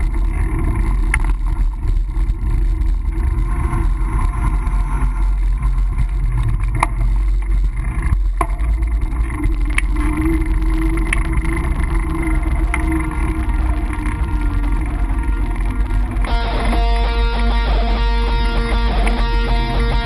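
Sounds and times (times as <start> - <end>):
wind and bicycle riding noise: 0.0 - 20.0
sharp clicks: 16.2 - 20.0.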